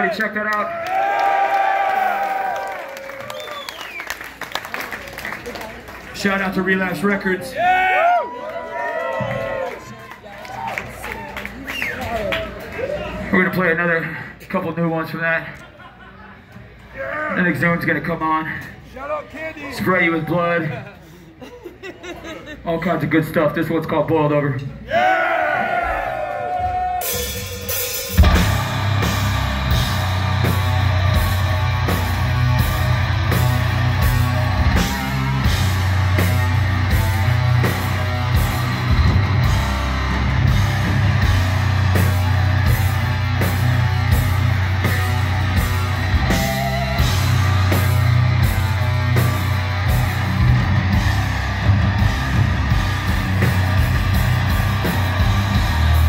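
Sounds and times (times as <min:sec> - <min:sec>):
heavy metal band playing: 0:26.7 - 0:56.0.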